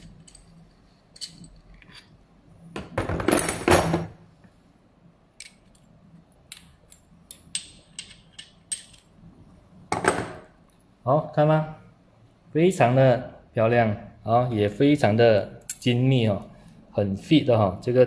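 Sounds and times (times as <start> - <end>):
steel tool parts clinking: 6.5 - 9.1.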